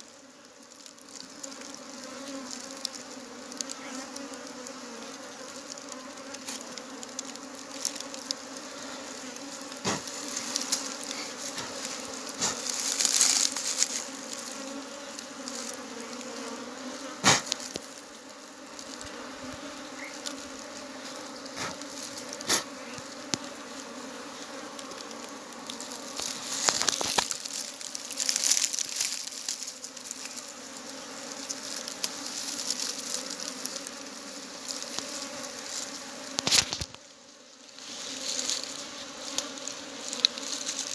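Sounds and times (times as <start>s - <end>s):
bees buzzing: 0.0s - 40.9s
clicks and rustles of handling: 24.4s - 30.5s.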